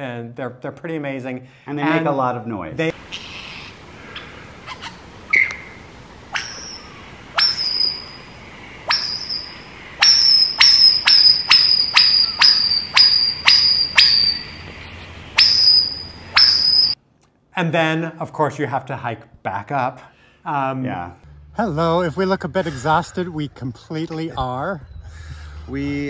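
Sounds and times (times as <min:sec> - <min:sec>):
soft bird chirps: 0:03.0 - 0:17.0
bird whistling sharp notes: 0:05.3 - 0:17.0.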